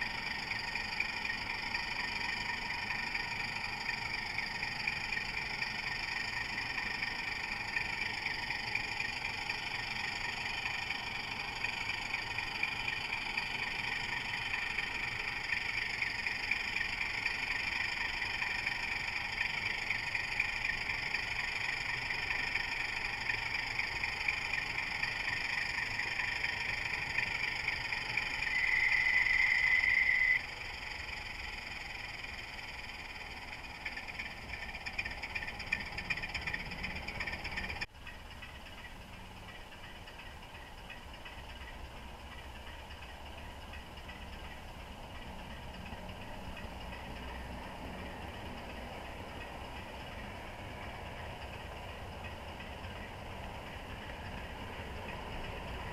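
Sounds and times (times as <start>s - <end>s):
model train mechanical whine: 0.0s - 55.9s.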